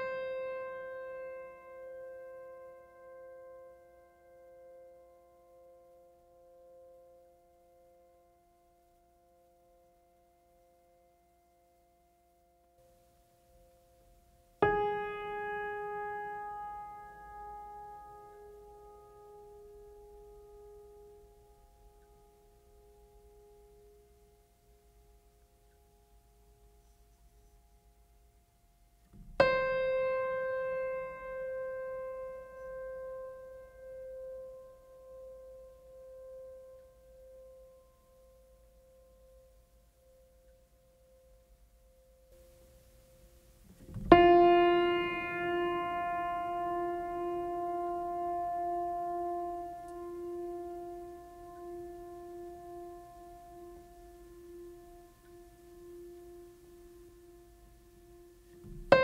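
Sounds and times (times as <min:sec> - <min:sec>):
piano note ringing: 0:14.6 - 0:24.0, 0:29.2 - 0:37.4, 0:43.8 - 0:59.0
keyboard chord ringing: 0:43.9 - 0:59.0.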